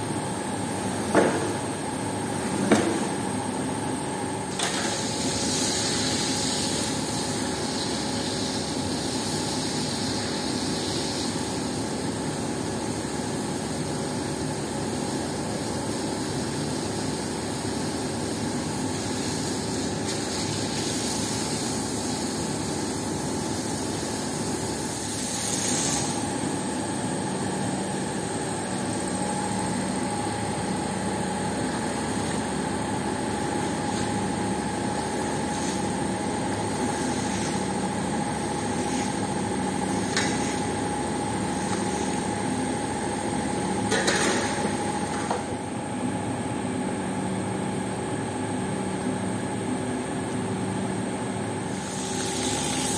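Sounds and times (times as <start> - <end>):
water pump motor drone: 0.0 - 52.9
water jet spraying on floor: 4.5 - 11.8, 17.0 - 26.4, 30.7 - 42.9, 51.6 - 52.9.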